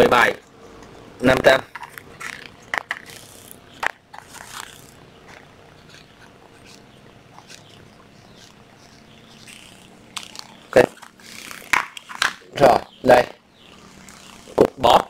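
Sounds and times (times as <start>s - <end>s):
marker pen scratching on label: 2.1s - 11.7s.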